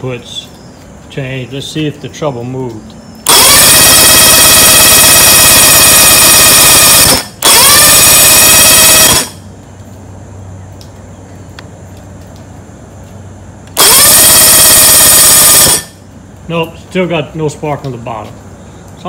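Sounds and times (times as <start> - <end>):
electric starter cranking outboard: 3.2 - 9.4, 13.7 - 16.0.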